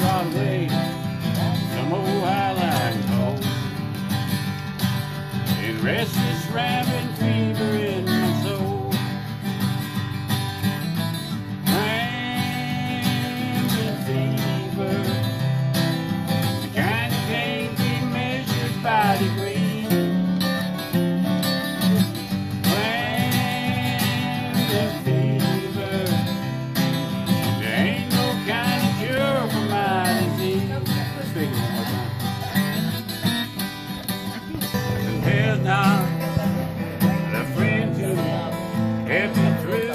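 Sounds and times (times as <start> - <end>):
person singing: 0.0 - 3.7, 5.5 - 9.2, 11.7 - 15.3, 22.7 - 26.5, 27.5 - 30.8, 34.4 - 39.9
acoustic guitars picking: 0.0 - 39.9.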